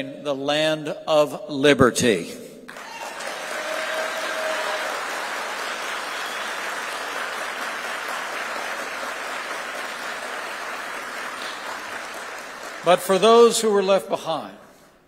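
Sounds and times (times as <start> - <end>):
audience applause: 2.7 - 13.5.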